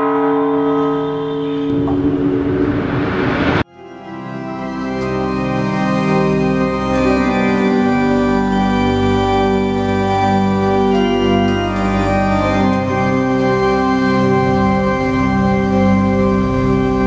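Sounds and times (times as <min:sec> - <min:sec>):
pipe organ playing chords: 0:03.7 - 0:17.0.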